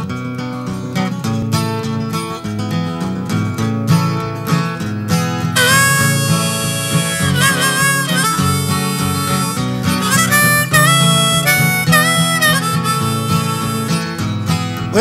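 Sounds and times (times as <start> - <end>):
acoustic guitar: 0.0 - 15.0
blues harmonica: 4.8 - 15.0.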